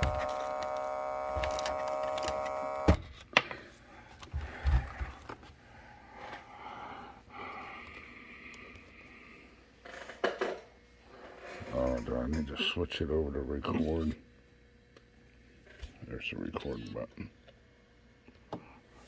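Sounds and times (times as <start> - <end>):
audio feedback tone: 0.0 - 3.0
cable handling: 0.0 - 5.5.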